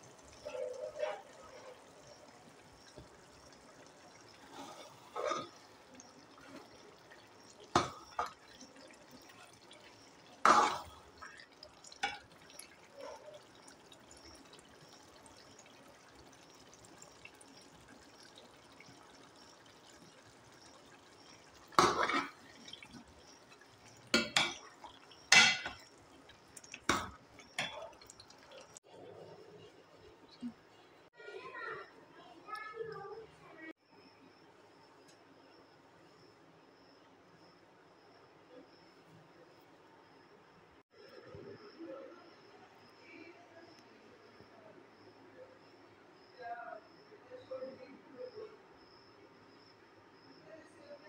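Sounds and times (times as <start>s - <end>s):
spoon stirring thick curry: 0.2s - 28.8s
spoon clinking against pot: 24.1s - 25.9s.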